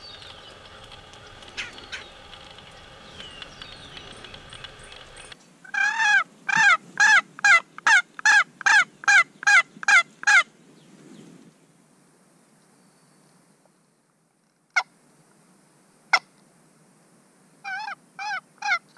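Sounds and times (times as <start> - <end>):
faint bird chirps: 0.0 - 5.4
turkey call hen yelps: 5.7 - 10.4, 17.6 - 18.9.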